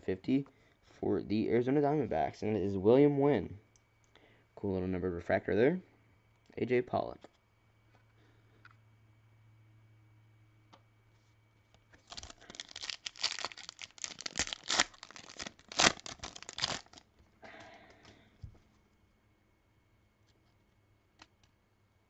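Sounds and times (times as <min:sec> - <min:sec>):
wrapper tearing and crinkling: 0:12.0 - 0:17.1.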